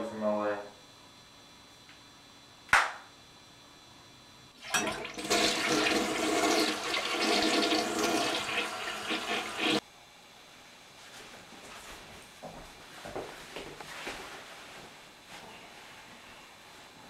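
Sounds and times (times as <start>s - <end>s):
toilet flushing: 4.6s - 9.8s.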